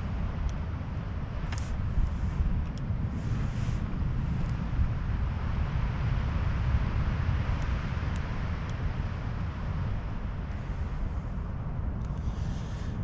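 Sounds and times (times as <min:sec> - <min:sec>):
wind buffeting microphone: 0:00.0 - 0:13.0
faint ticks: 0:01.5 - 0:02.9, 0:12.0 - 0:12.6.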